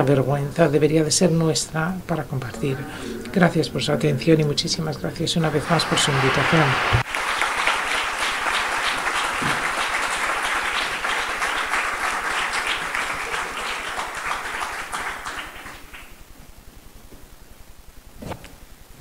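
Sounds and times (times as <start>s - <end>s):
audience applauding: 5.4s - 16.3s.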